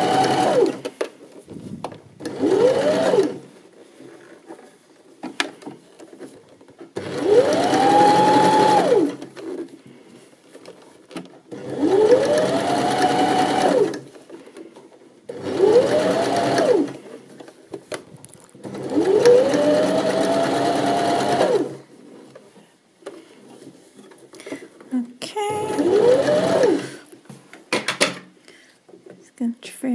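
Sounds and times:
sewing machine whine: 0:00.0 - 0:00.9, 0:02.2 - 0:03.5, 0:07.0 - 0:09.6, 0:11.5 - 0:14.1, 0:15.3 - 0:17.1, 0:18.6 - 0:21.8, 0:25.5 - 0:27.0.

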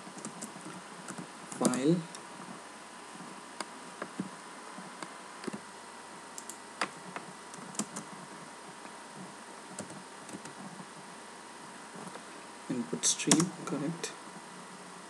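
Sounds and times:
steady hiss: 0:00.0 - 0:15.0
computer keyboard keystrokes: 0:01.1 - 0:01.8, 0:07.6 - 0:08.1, 0:13.3 - 0:13.5.

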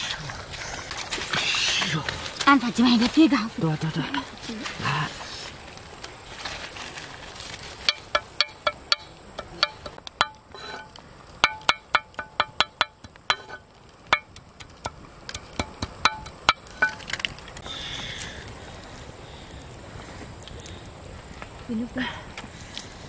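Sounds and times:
machete chopping on stone: 0:11.4 - 0:17.1.

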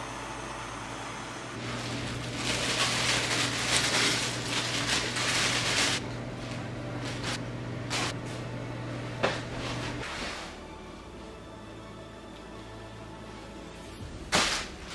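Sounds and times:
plastic bag crinkling: 0:01.6 - 0:08.2.

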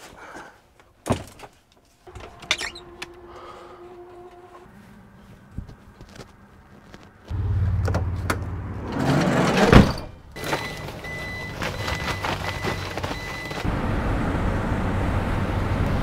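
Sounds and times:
van engine starting and running: 0:02.1 - 0:16.0.

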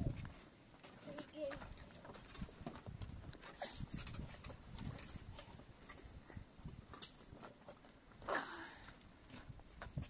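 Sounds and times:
footsteps on stony ground: 0:00.0 - 0:10.0.

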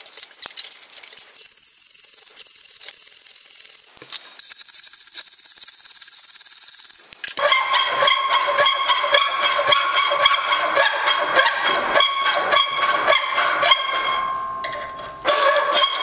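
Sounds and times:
ringing metal tone: 0:06.8 - 0:16.0
hacksaw cutting steel: 0:07.4 - 0:16.0.

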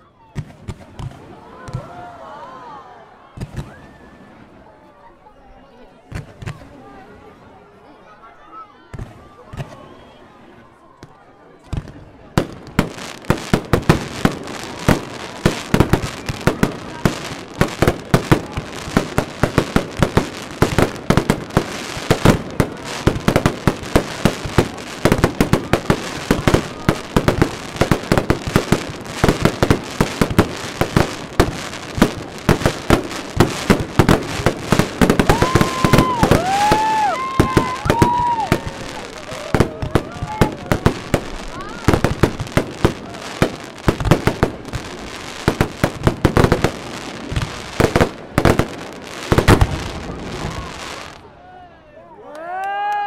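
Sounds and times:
fireworks bangs and crackling: 0:00.3 - 0:02.2, 0:03.3 - 0:04.7, 0:06.0 - 0:07.4, 0:08.9 - 0:51.3
firework whistles: 0:35.2 - 0:39.5.

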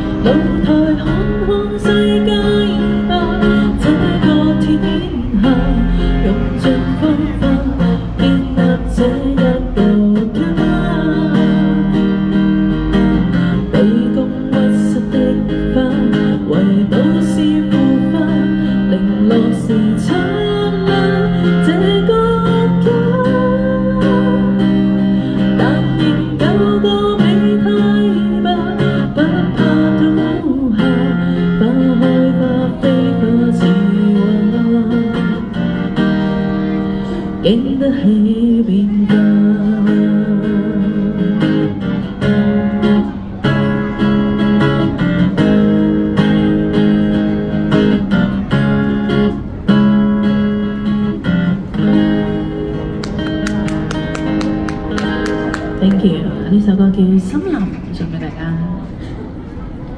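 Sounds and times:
woman singing: 0:00.0 - 0:12.4, 0:13.6 - 0:36.5, 0:37.2 - 0:41.8
acoustic guitar strumming: 0:00.0 - 0:59.9.

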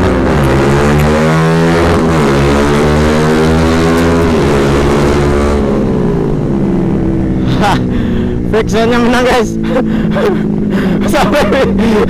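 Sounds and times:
motorcycle engine revving: 0:00.0 - 0:12.0.

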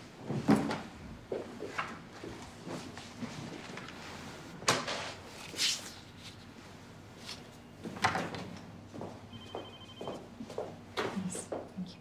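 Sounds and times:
telephone electronic ring: 0:09.3 - 0:10.3.

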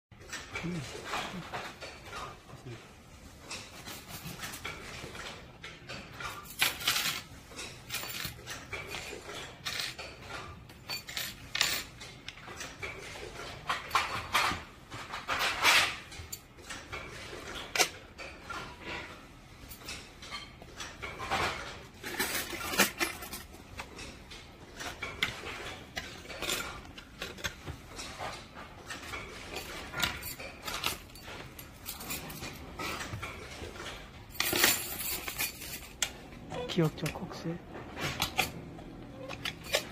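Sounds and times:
metal clips clinking and rattling: 0:19.6 - 0:37.3, 0:39.2 - 0:39.9.

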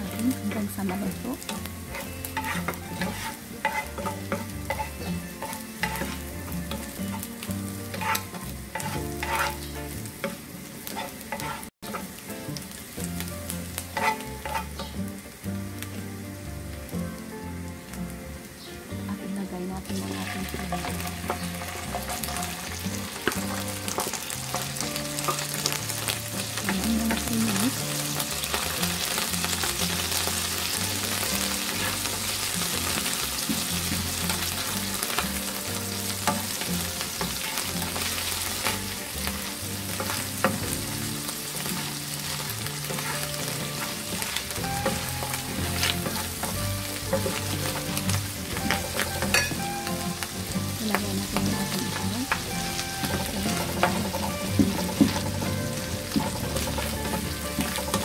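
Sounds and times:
spatula stirring and scraping: 0:00.0 - 0:12.3, 0:13.4 - 0:15.2, 0:20.0 - 0:50.4, 0:51.4 - 0:58.0
food sizzling in a frying pan: 0:00.0 - 0:58.0.

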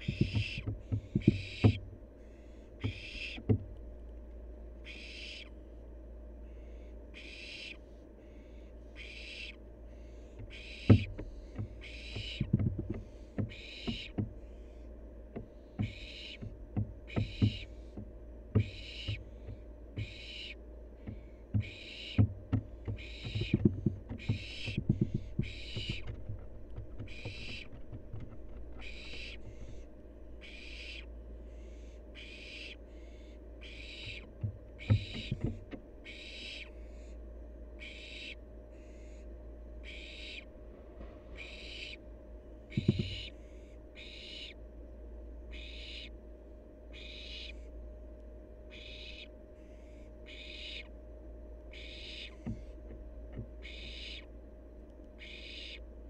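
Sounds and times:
young owl hissing begging call: 0:01.4 - 0:03.5, 0:04.8 - 0:05.6, 0:06.5 - 0:12.4, 0:13.1 - 0:14.6, 0:15.8 - 0:16.4, 0:18.6 - 0:19.2, 0:20.0 - 0:20.6, 0:21.6 - 0:22.2, 0:23.0 - 0:23.6, 0:24.2 - 0:26.1, 0:28.8 - 0:29.8, 0:30.4 - 0:34.3, 0:36.0 - 0:37.2, 0:37.8 - 0:39.2, 0:39.8 - 0:40.5, 0:41.4 - 0:42.0, 0:42.7 - 0:44.6, 0:45.5 - 0:46.2, 0:46.9 - 0:47.7, 0:48.7 - 0:51.0, 0:51.7 - 0:52.7, 0:53.6 - 0:54.3, 0:55.2 - 0:55.9.

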